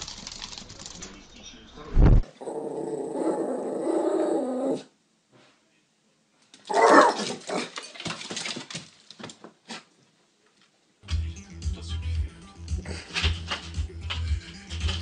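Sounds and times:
dog growling: 2.3s - 4.9s
clattering: 13.2s - 15.0s.

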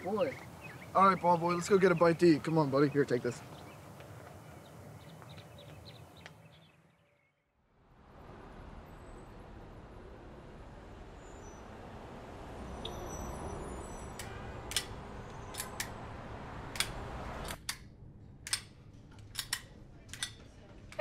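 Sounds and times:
sharp clicks: 14.2s - 16.0s, 16.7s - 20.4s.

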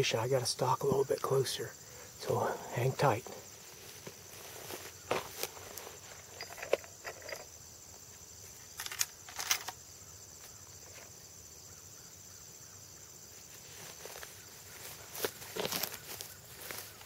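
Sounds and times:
high insect trill: 0.0s - 17.0s
footsteps rustling through grass: 3.4s - 6.3s, 13.2s - 17.0s.

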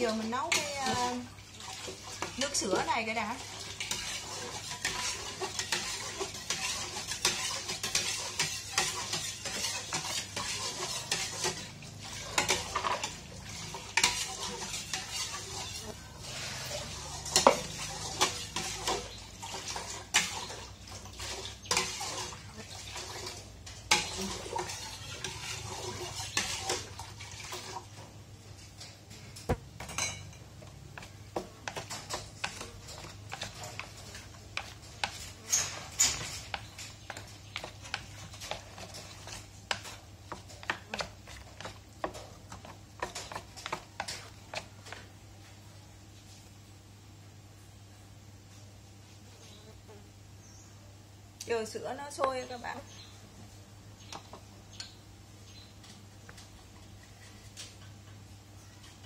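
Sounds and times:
metal spoon stirring in pot: 0.0s - 45.1s.

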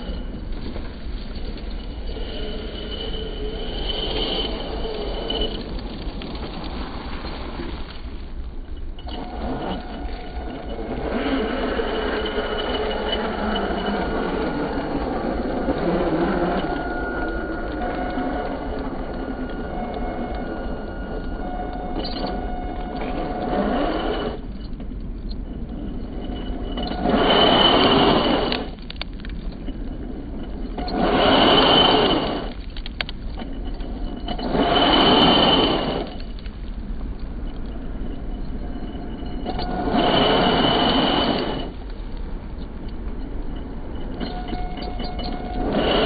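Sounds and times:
toy truck motor revving with whine: 9.0s - 24.4s, 26.4s - 28.8s, 30.8s - 32.6s, 34.3s - 36.4s, 39.2s - 41.8s.

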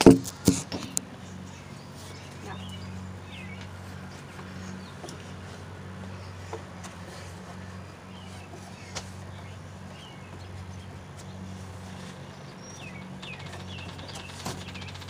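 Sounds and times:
shoe knocking wooden railing: 0.0s - 0.9s.

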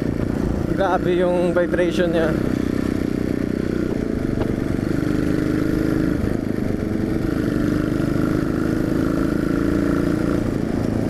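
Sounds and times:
motorcycle engine running: 0.0s - 11.0s
wind rushing over microphone: 0.0s - 11.0s.

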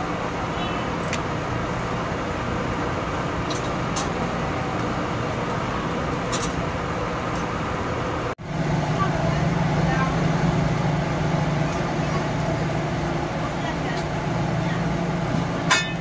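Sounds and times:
street traffic rumble: 0.0s - 16.0s
metal tongs clinking on grill: 15.7s - 16.0s.

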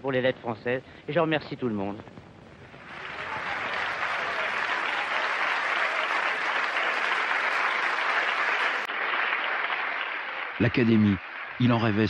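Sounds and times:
audience applauding: 2.6s - 12.0s.

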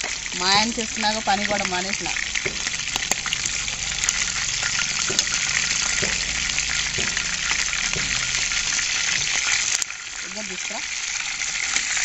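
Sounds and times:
chicken sizzling in oil: 0.0s - 12.0s.

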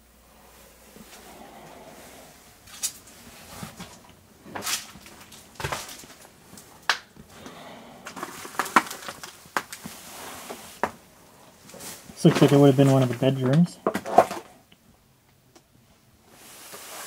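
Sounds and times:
footsteps on debris: 2.6s - 7.3s, 8.0s - 10.0s, 11.7s - 13.7s
objects being handled: 2.6s - 11.0s, 11.6s - 14.6s.

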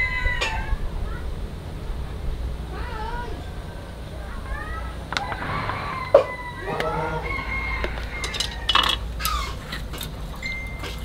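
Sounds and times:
rooster crowing: 0.0s - 0.9s, 5.1s - 9.7s.

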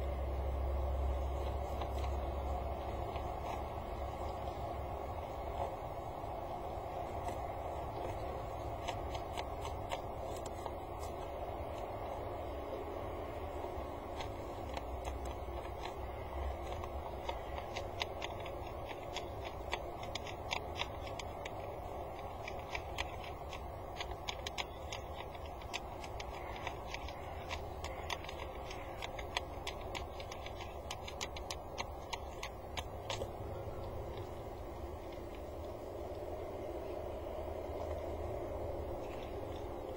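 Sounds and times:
steady background hum: 0.0s - 39.9s
beak clicking on pebbles: 6.9s - 12.1s, 13.8s - 36.2s.

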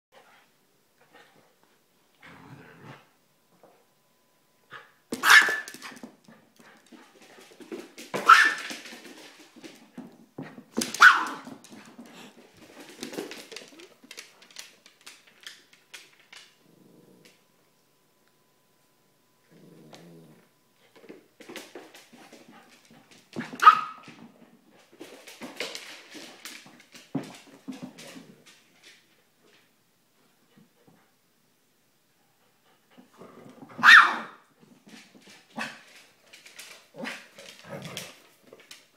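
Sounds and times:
dog barking: 5.2s - 5.7s, 11.0s - 11.4s, 33.8s - 34.4s.

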